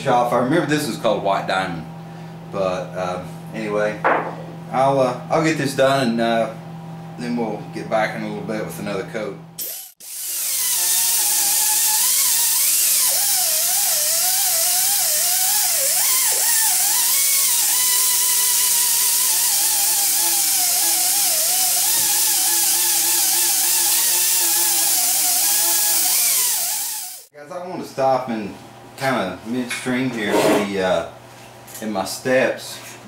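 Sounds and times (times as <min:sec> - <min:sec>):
air polisher whining: 0:09.6 - 0:27.3.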